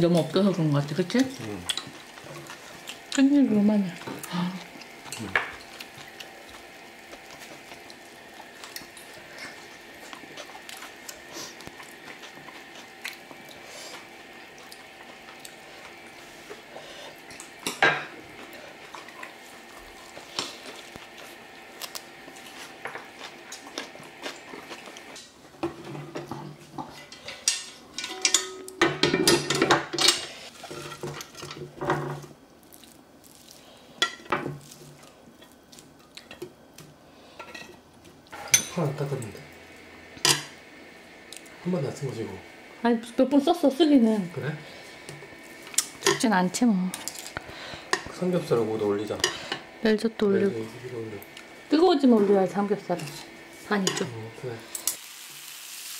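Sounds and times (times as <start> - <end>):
steady hum: 0.0 - 55.0
metal tongs scraping on grill: 46.9 - 49.7, 52.1 - 55.0.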